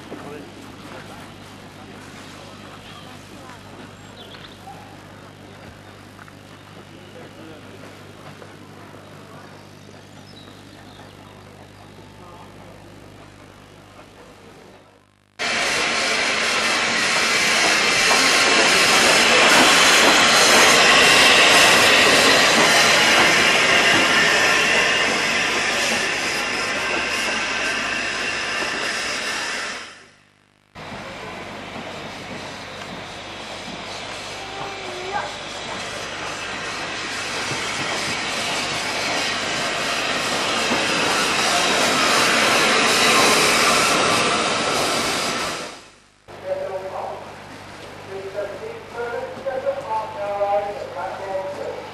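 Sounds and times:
steam hissing from locomotive: 15.4s - 30.1s, 30.8s - 45.9s.

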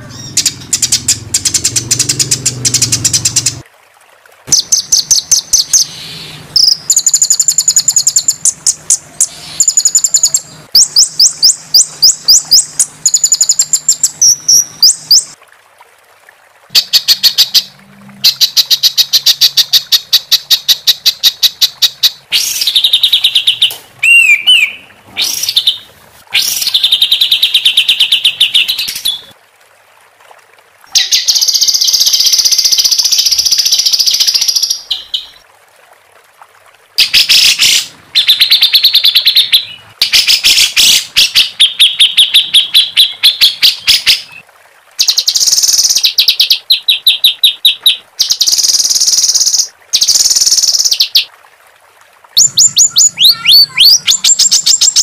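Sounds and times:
songbird singing: 4.5s - 15.4s, 18.3s - 25.8s, 52.4s - 55.0s
swooping whistled bird notes: 9.2s - 15.3s, 22.4s - 25.8s, 52.4s - 55.0s
harsh buzzing bird phrase: 52.4s - 54.6s.

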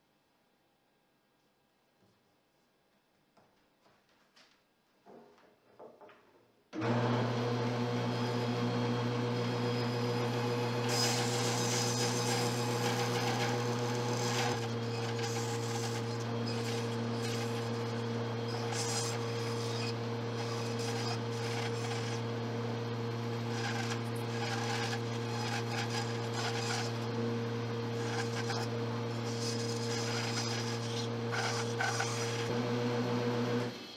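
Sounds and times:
bandsaw motor hum: 6.8s - 33.9s
saw blade rasping through wood: 9.7s - 22.4s, 23.4s - 27.1s, 27.9s - 32.5s.

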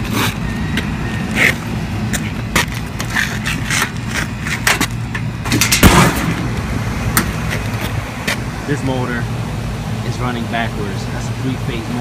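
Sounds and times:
handling knocks and scrapes: 0.0s - 6.0s
air conditioning unit humming: 0.0s - 12.0s.

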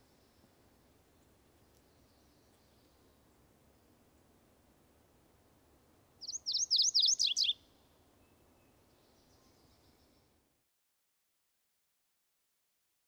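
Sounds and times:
warbler singing: 6.2s - 10.3s.

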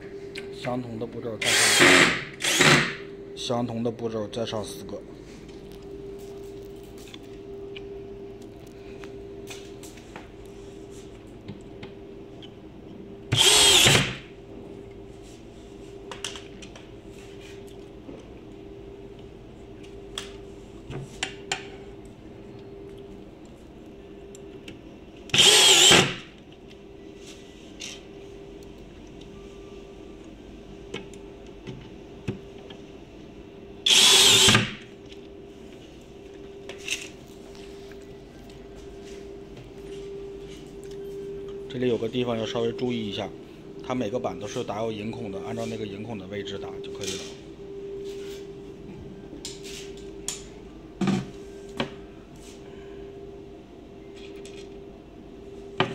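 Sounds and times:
faint steady hum: 0.0s - 55.9s
power drill driving a screw: 1.4s - 3.0s, 13.3s - 14.2s, 25.3s - 26.2s, 33.9s - 34.8s.

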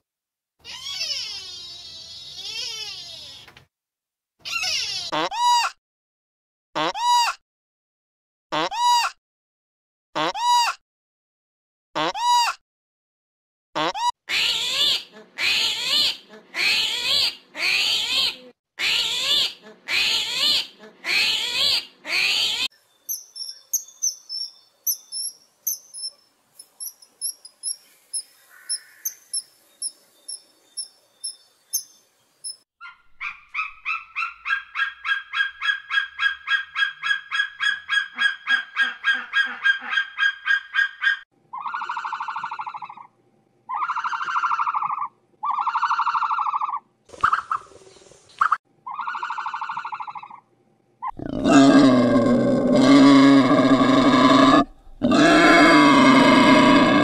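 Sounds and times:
loud harsh animal calls: 0.6s - 3.4s, 43.7s - 46.8s, 51.0s - 57.0s
faint high-pitched chirps: 22.7s - 33.0s
fast rattling call: 23.1s - 29.5s
long drawn-out calls: 28.2s - 29.5s.

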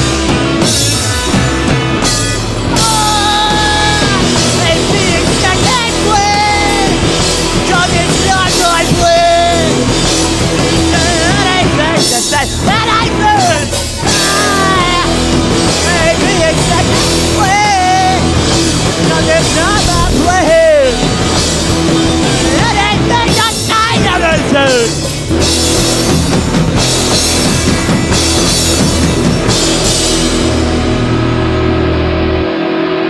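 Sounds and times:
drum kit: 0.0s - 33.0s
electric bass: 0.0s - 33.0s
electric guitar: 0.0s - 33.0s
person singing: 2.7s - 21.4s, 22.2s - 25.1s.

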